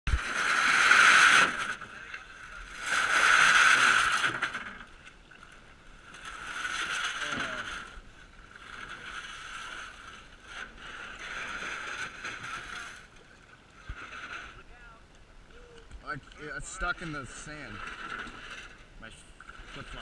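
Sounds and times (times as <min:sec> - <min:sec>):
water sloshing: 0:00.1 - 0:20.0
hull scraping over sand: 0:16.4 - 0:20.0.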